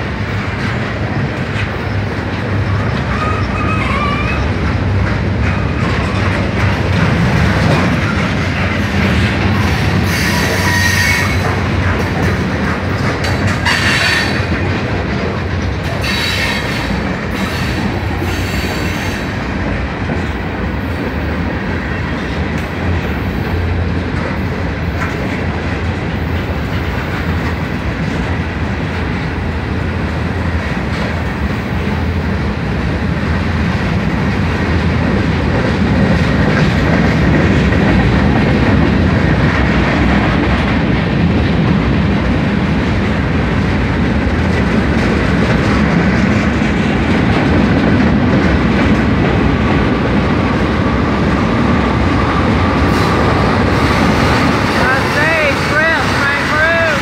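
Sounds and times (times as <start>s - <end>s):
train wheels on rails: 0.0s - 57.0s.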